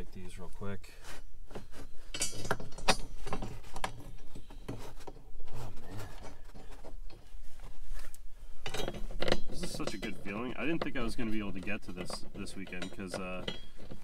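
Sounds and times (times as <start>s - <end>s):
metal bolts clicking and knocking: 2.1s - 5.3s, 8.6s - 14.0s.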